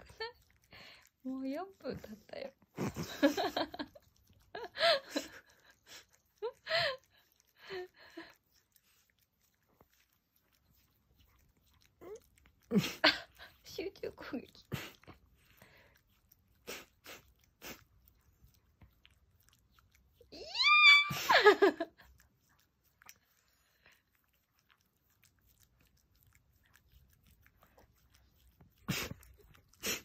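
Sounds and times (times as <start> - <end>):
dog licking: 0.0 - 20.5, 21.3 - 30.0
high-pitched dog cry: 20.3 - 21.7.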